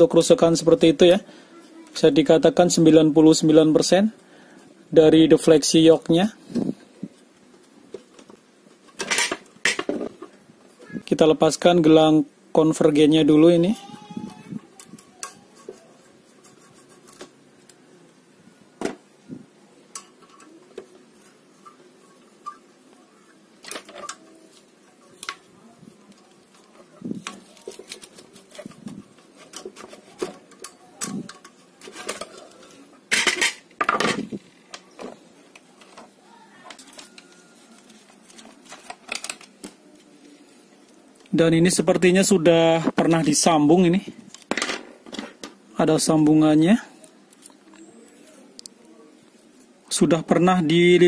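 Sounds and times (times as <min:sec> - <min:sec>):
parts knocking and clattering: 0:33.1 - 0:34.3.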